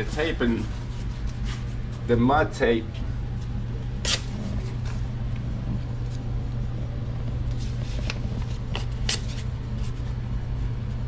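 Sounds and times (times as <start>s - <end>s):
low mechanical hum: 0.0s - 11.0s
paper tape clicks and rustles: 7.4s - 10.2s.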